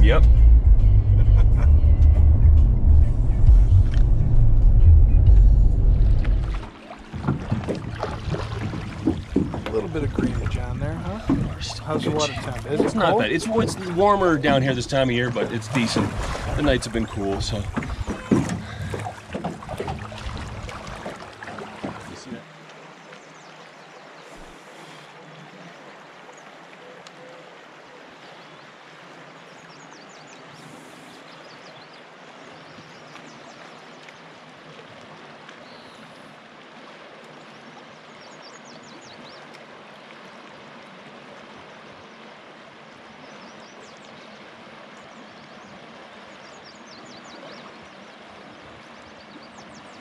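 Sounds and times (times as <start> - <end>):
river rushing over riffle: 5.6 - 22.5.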